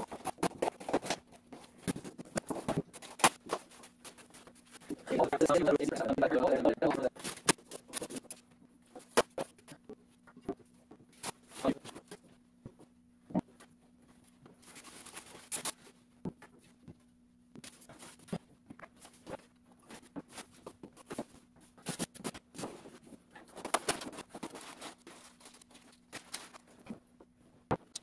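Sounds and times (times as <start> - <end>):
packing foam and cardboard rustling: 0.0 - 5.6, 13.4 - 16.8, 17.6 - 27.1.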